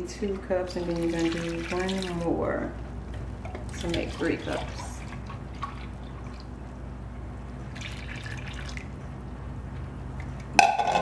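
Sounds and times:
low steady hum: 0:00.0 - 0:11.0
milk pouring: 0:00.7 - 0:02.2, 0:07.7 - 0:08.9.

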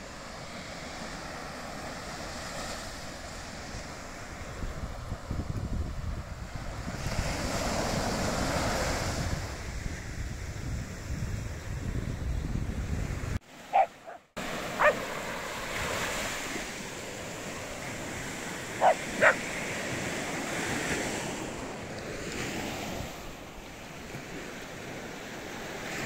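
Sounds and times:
waves breaking on beach: 0:00.0 - 0:10.2, 0:13.1 - 0:26.0
wind on microphone: 0:03.2 - 0:23.4
small dog yapping: 0:13.7 - 0:14.2, 0:14.8 - 0:15.0, 0:18.8 - 0:19.4.

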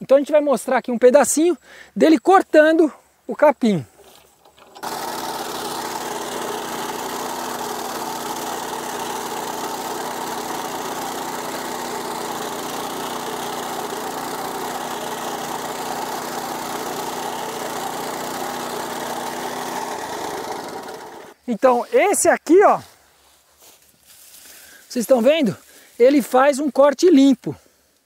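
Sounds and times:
sickle-bar mower cutting grass: 0:03.9 - 0:21.4
small tractor engine running: 0:04.0 - 0:21.4.

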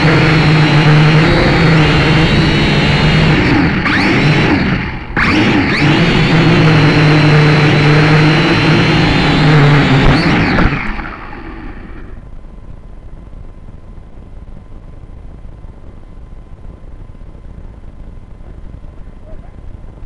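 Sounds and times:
model aircraft motor humming: 0:00.0 - 0:12.2.

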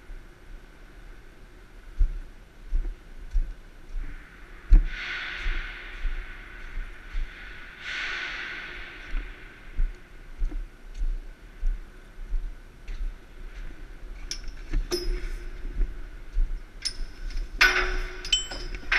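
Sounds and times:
knocks on steel ladder rungs: 0:16.9 - 0:18.9.

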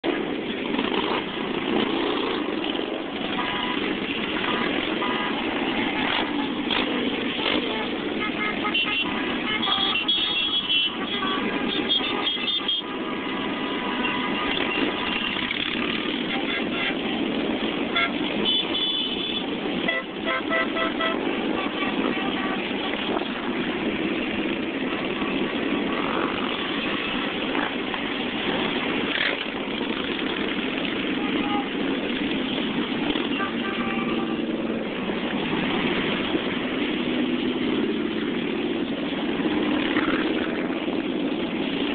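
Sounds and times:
motorcycles and cars passing: 0:00.0 - 0:41.9
road noise: 0:00.0 - 0:41.9
car horn toots: 0:07.4 - 0:12.9, 0:16.2 - 0:17.2, 0:17.9 - 0:23.0, 0:31.2 - 0:31.8, 0:33.3 - 0:34.5.

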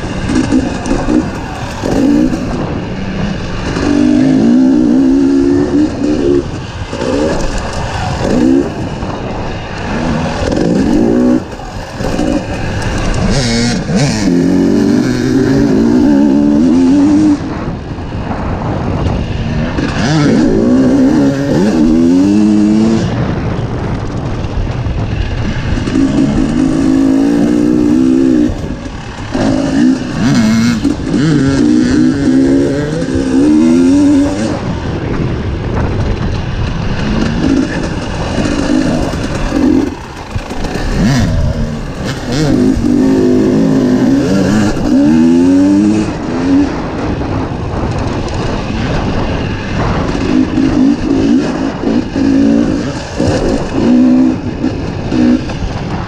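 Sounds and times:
dirt bike engine revving: 0:00.0 - 0:56.0
steady rush of noise: 0:00.0 - 0:56.0.

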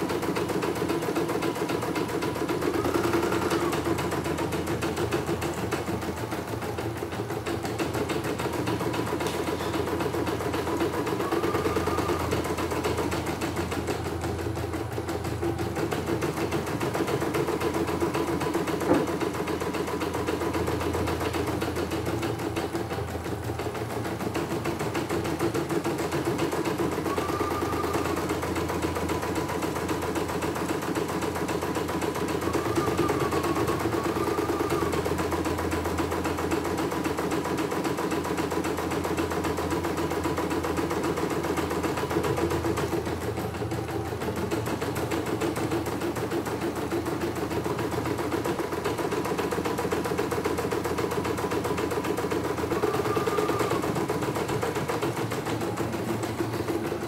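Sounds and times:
embroidery machine needle chatter: 0:00.0 - 0:57.0.

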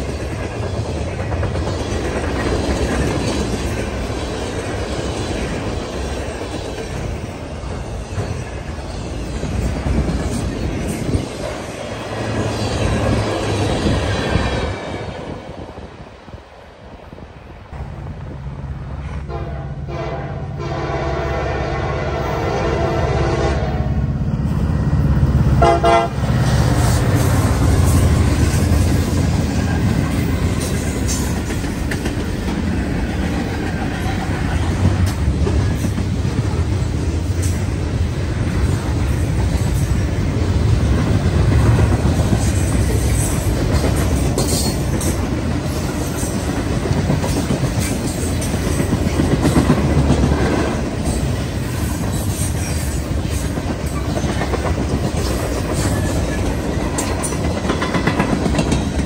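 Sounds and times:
freight train rumbling past: 0:00.0 - 0:59.0
train horn toot: 0:19.2 - 0:24.1, 0:25.6 - 0:26.3.

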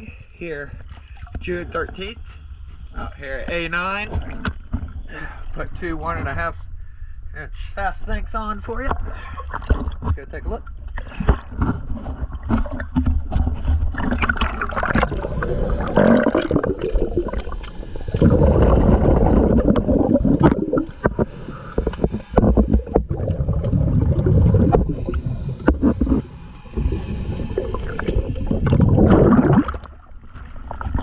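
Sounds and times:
steady low rumble: 0:00.0 - 0:31.0
underwater water movement and bubbling: 0:04.0 - 0:05.5, 0:08.6 - 0:31.0.

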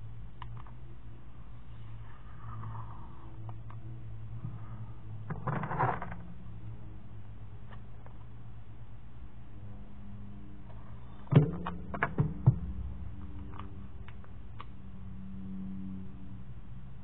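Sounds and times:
steady low hum: 0:00.0 - 0:17.0
sharp clicks and knocks: 0:11.3 - 0:14.7.

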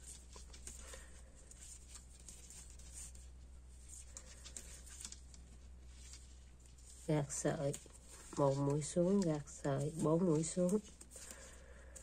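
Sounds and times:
yarn rubbing: 0:01.5 - 0:11.2.

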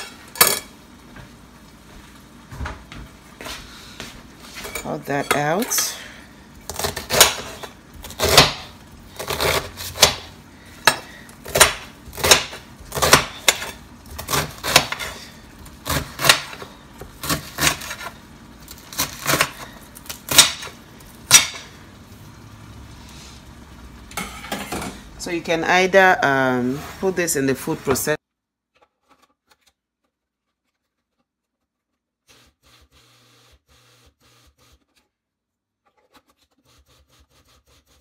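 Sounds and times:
knife chopping cabbage on glass dish: 0:06.7 - 0:15.2, 0:15.8 - 0:18.2.

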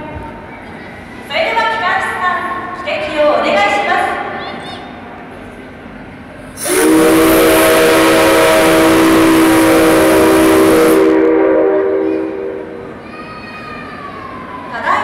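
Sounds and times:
hissing air: 0:06.5 - 0:11.2
steam locomotive whistle: 0:06.6 - 0:12.8.

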